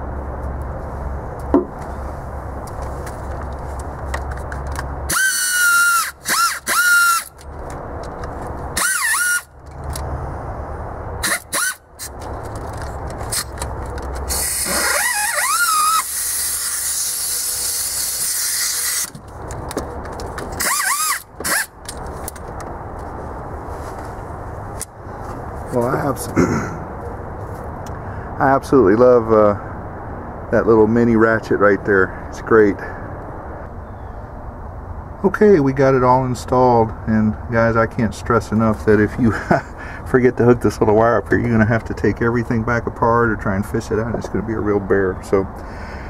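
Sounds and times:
air ratchet whining: 5.1 - 10.0, 11.2 - 22.4.

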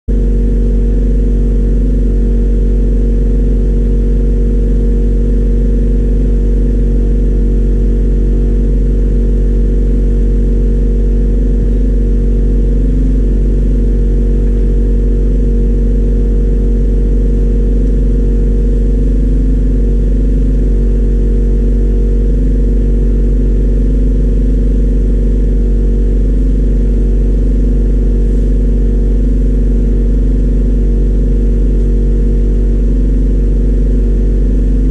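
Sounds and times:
workshop machine motor drone: 0.1 - 34.9.

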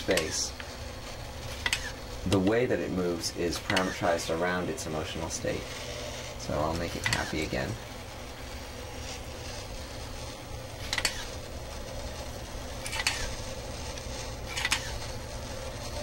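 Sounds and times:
robot motor hum: 0.0 - 16.0
sharp metallic clicks: 1.6 - 2.5.

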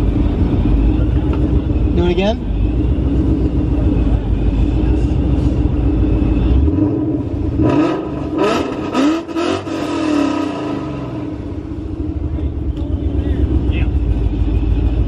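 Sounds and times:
car engine idling and revving: 0.0 - 15.0.

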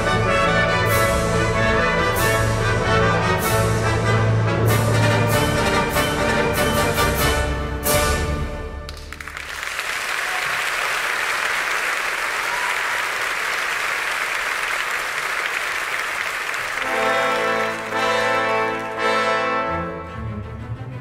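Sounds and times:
orchestra playing: 0.0 - 9.4, 14.6 - 21.0
audience applauding: 8.9 - 19.2.

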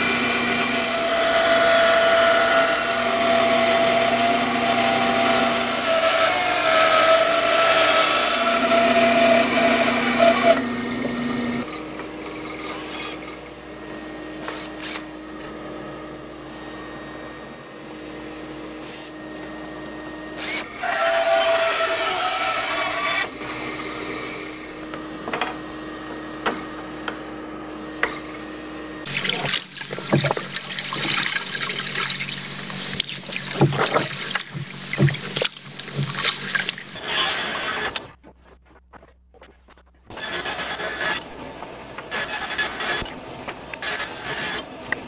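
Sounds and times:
band saw cutting wood: 0.0 - 15.5, 20.3 - 26.8, 27.9 - 38.2, 40.1 - 45.0.

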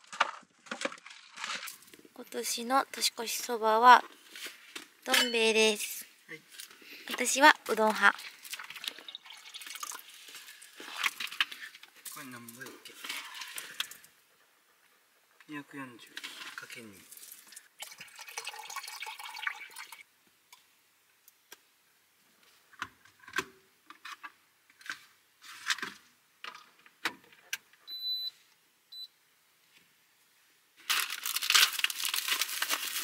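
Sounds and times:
water poured into kettle: 8.3 - 11.4, 16.6 - 20.0
short electronic beeps: 27.9 - 28.3
packaging crinkling: 30.8 - 33.0.

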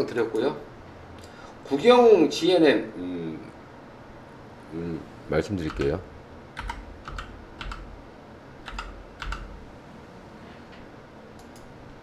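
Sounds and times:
computer keyboard keys tapping: 5.6 - 6.0, 6.6 - 8.0, 8.6 - 9.6.

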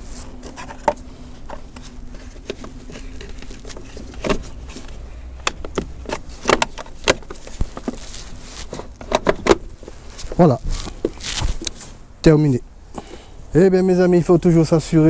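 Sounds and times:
plastic clicks and knocks: 2.4 - 8.0.

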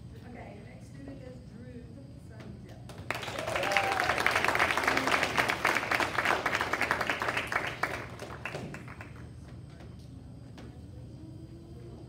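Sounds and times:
audience applauding: 3.1 - 9.3.

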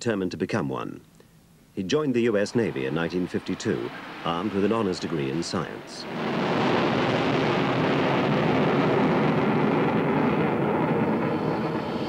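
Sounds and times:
loud jet engine noise: 2.4 - 12.0.

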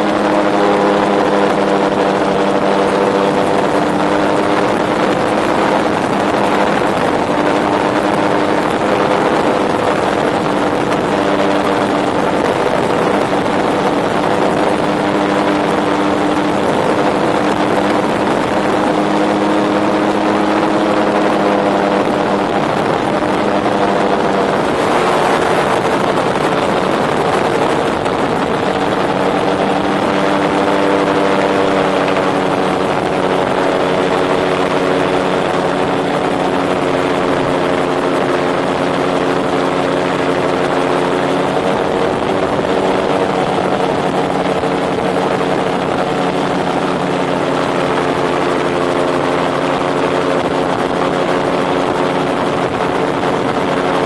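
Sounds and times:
aircraft engine and propeller: 0.0 - 54.0
wind rushing: 0.0 - 54.0.

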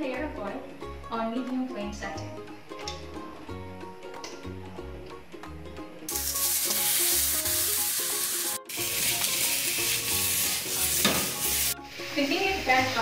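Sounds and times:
background music: 0.0 - 13.0
meat sizzling in a wok: 6.1 - 13.0.

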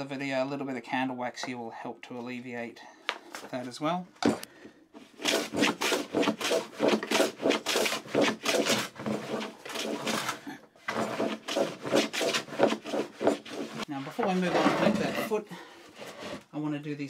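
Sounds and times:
wax scraping on wood: 5.0 - 16.5.

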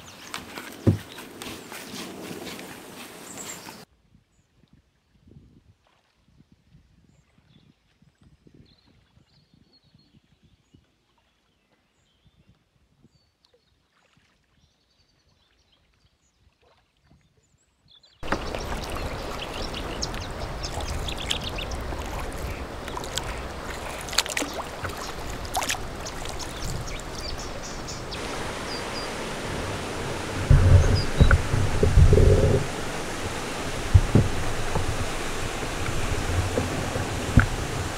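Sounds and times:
water rushing: 0.0 - 3.9, 18.2 - 37.9
faint bird chirps: 18.2 - 29.3
water splashes: 18.2 - 37.9.

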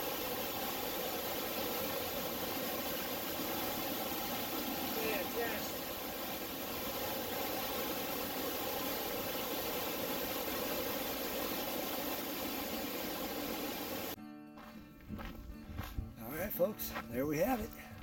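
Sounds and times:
waterfall rushing: 0.0 - 14.2.

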